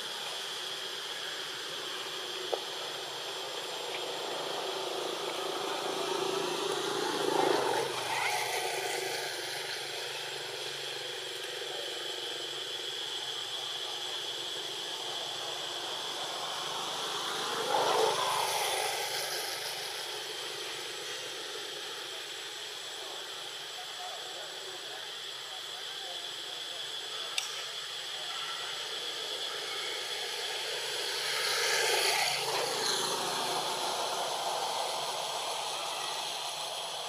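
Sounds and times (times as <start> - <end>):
high insect-like drone: 0.0 - 37.0
outdoor hiss: 0.0 - 37.0
motor vehicles passing: 3.2 - 10.5.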